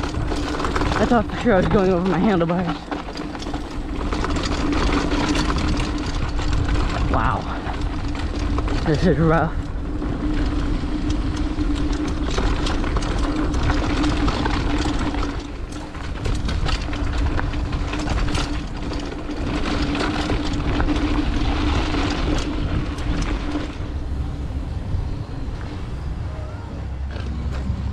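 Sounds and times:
low rumble: 0:00.0 - 0:27.9
mountain bike rattling: 0:00.0 - 0:27.9
steady hum: 0:20.4 - 0:27.9.

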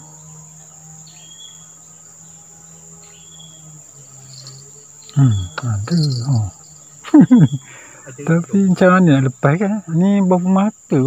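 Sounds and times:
faint low hum: 0:00.0 - 0:11.0
insects droning: 0:00.0 - 0:11.0
man speaking: 0:05.1 - 0:06.6, 0:08.1 - 0:11.0.

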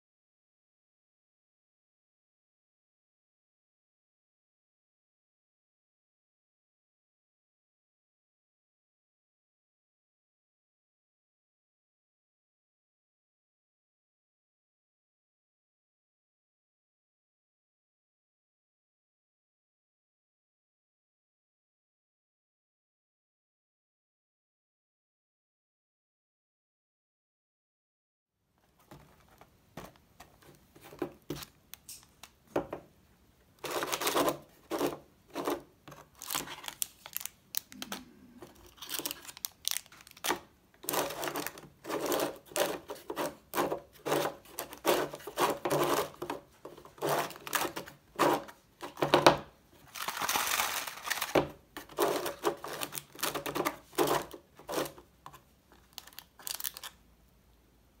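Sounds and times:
plastic wrappers crinkling: 0:33.6 - 0:57.0.

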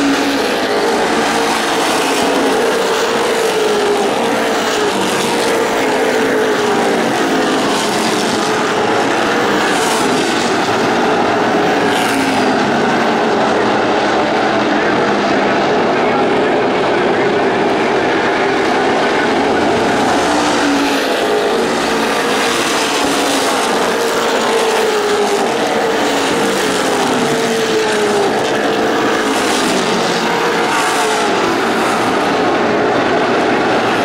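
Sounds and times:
race car engines roaring: 0:00.0 - 0:34.0.

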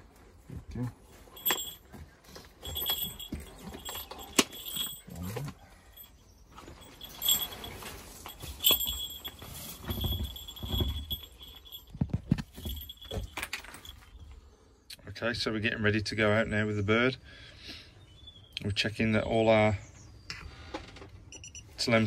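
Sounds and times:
hawk's bell jingling: 0:01.1 - 0:14.3.

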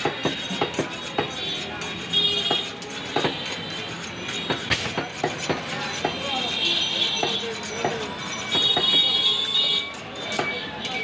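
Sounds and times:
knife honing on steel rod: 0:00.0 - 0:06.5.

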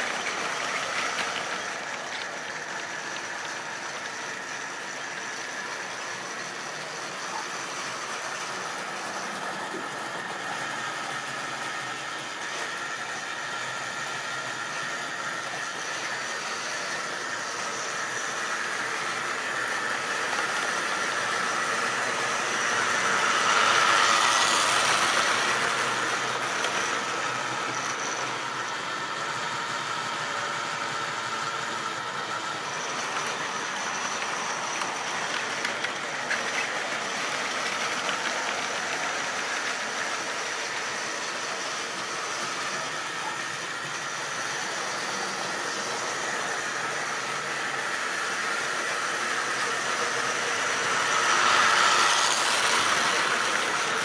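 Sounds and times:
model train wheels clattering: 0:00.0 - 0:12.4, 0:17.6 - 0:28.4, 0:30.2 - 0:45.9
electric motor humming: 0:00.0 - 0:54.0.

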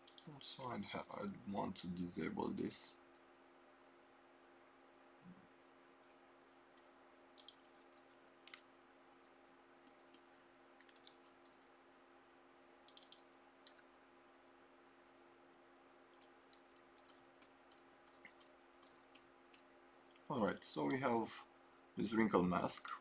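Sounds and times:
computer mouse clicks: 0:00.0 - 0:00.4, 0:06.7 - 0:08.7, 0:09.8 - 0:11.7, 0:12.8 - 0:13.9, 0:16.1 - 0:21.1
low electrical hum: 0:00.0 - 0:23.0.

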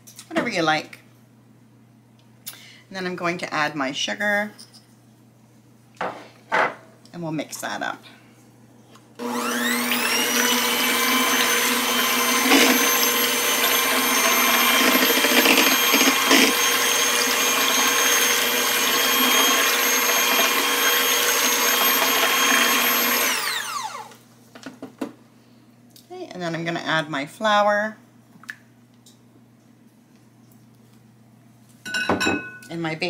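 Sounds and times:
electric hand mixer running: 0:09.2 - 0:24.2.

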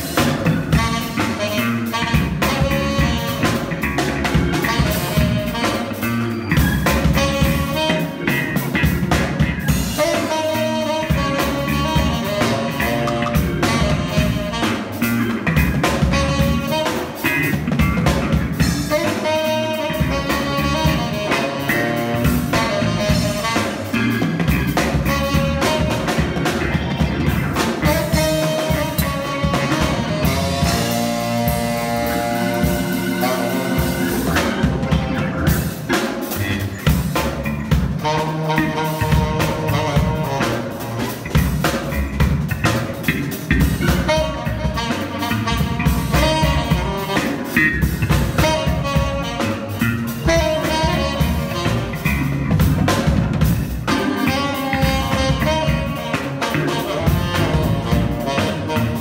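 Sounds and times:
bass: 0:00.0 - 0:59.0
drum kit: 0:00.0 - 0:59.0
keyboard: 0:00.0 - 0:59.0
tenor saxophone: 0:00.0 - 0:59.0.

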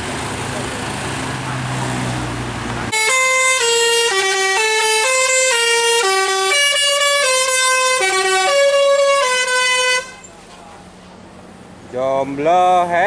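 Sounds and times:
bus air horn playing a tune: 0:02.9 - 0:10.3.

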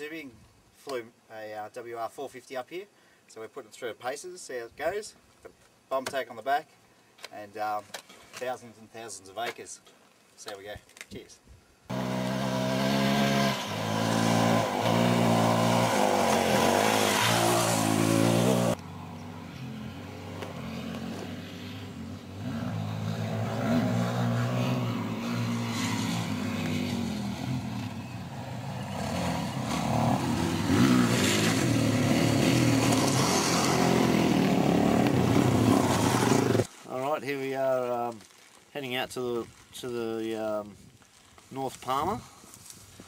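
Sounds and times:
dirt bike engines revving: 0:11.9 - 0:36.7.

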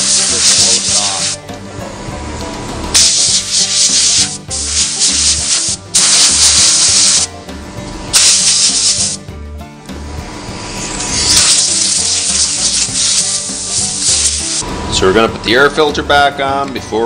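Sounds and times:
compressed air hissing: 0:00.0 - 0:01.4, 0:02.9 - 0:09.3, 0:10.1 - 0:14.6.

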